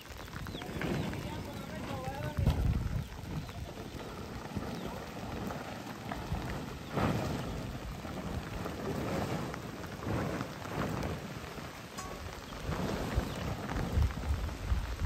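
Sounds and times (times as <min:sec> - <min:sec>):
low rumbling surges: 0:00.0 - 0:15.0
rain falling: 0:00.0 - 0:15.0.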